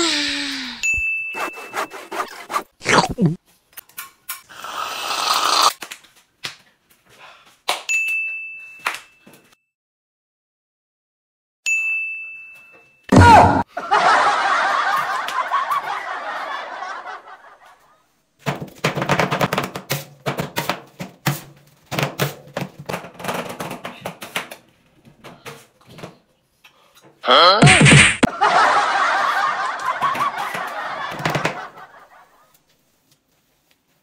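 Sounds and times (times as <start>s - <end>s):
bell-like ding: 0.8s - 1.8s, 7.9s - 9.5s, 11.7s - 13.1s.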